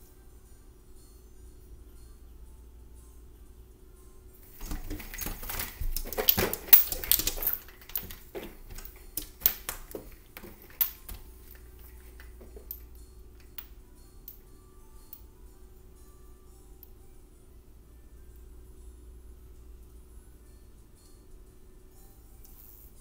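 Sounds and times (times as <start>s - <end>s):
window blinds rattling: 4.5s - 12.6s.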